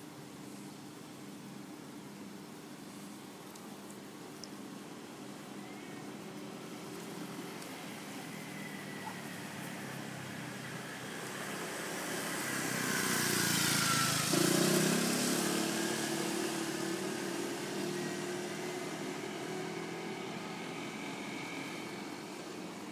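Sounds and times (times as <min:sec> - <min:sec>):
motor scooter passing by: 0:07.5 - 0:22.7.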